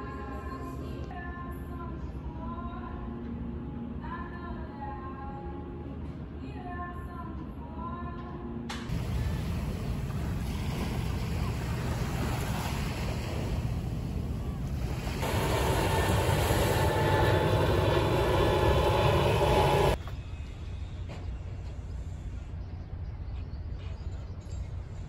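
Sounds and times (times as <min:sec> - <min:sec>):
sea surf washing on shore: 0:08.9 - 0:20.0
wind rumbling on microphone: 0:08.9 - 0:20.0.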